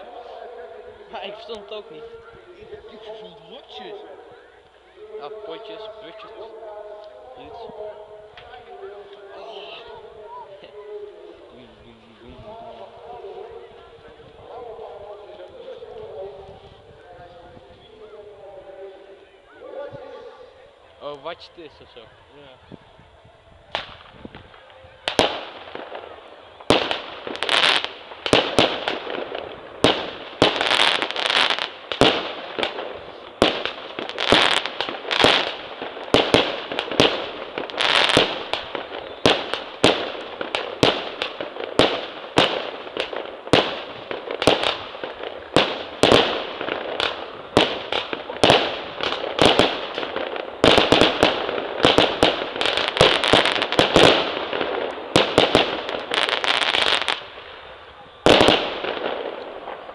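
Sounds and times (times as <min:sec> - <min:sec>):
firework bangs: 0:23.7 - 0:59.9.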